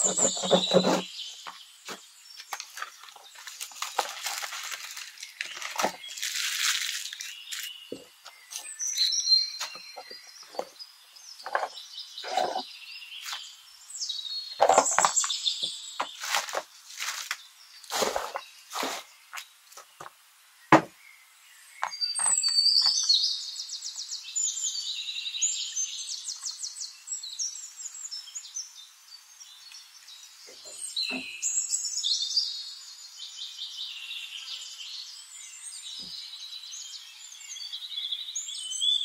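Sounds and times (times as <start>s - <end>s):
pen scraping through tape: 0.0s - 1.1s
cardboard flaps squeaking: 0.0s - 1.5s
tissue paper crackling: 2.7s - 7.7s, 16.2s - 19.0s
plastic parts knocking on mat: 20.7s - 20.9s.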